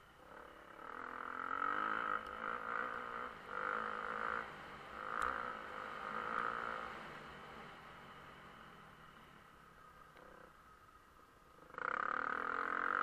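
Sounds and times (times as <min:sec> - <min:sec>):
motocross engine revving: 0:00.3 - 0:07.2, 0:11.7 - 0:13.0.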